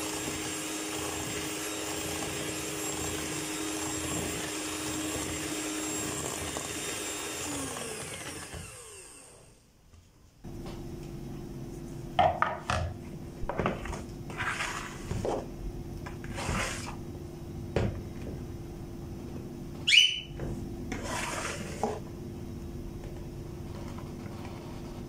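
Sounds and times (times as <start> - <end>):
flour scooping rustles: 13.8 - 15.5
glass cup scraping plastic bowl: 14.3 - 15.5, 16.2 - 17.0, 20.9 - 22.0
sharply rising squeak: 19.8 - 20.4.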